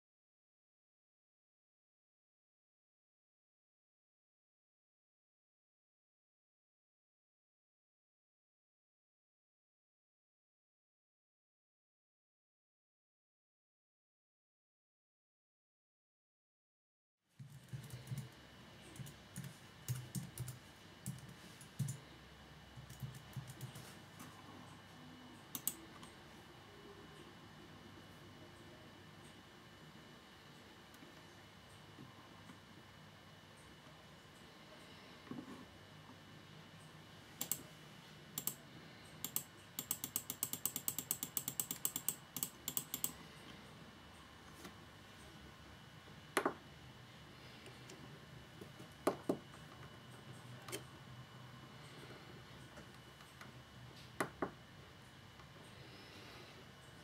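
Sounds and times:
typing on computer keyboard: 17.4 - 18.3, 18.9 - 22.0, 22.8 - 23.9, 25.5 - 25.8, 38.4 - 38.6, 39.2 - 43.2
sharp clicks: 25.5 - 25.8, 37.4 - 37.6, 38.4 - 38.6, 39.2 - 43.2.

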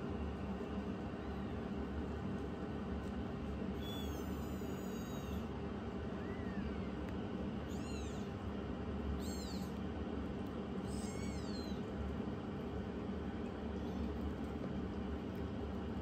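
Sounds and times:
steady low hum: 0.0 - 16.0
kitten mewing: 3.8 - 5.5, 7.6 - 8.4, 9.2 - 9.8, 10.8 - 11.9.

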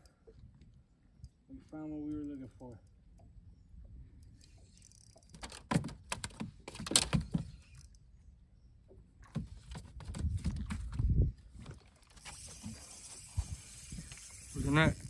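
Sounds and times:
fishing reel clicking and rattling: 4.2 - 8.0, 12.0 - 15.0.

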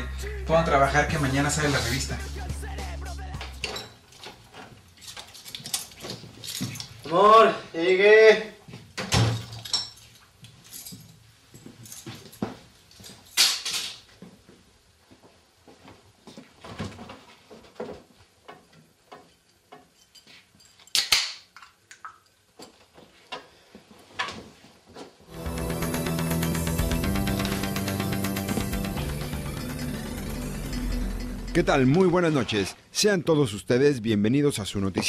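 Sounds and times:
music: 0.0 - 3.8, 25.3 - 32.2
footsteps: 1.4 - 4.8
small things clinking: 3.6 - 7.1, 9.4 - 14.0.

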